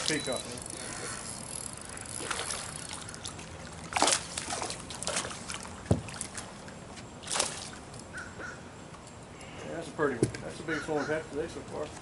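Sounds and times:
fish splashing at water surface: 1.8s - 7.9s.

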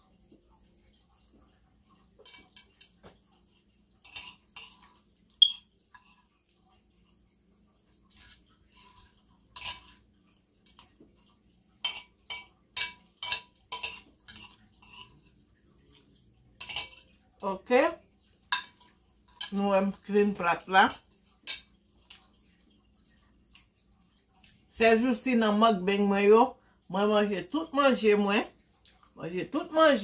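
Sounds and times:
utensil clinking on plate: 11.8s - 15.4s, 16.6s - 17.1s, 18.4s - 19.6s.

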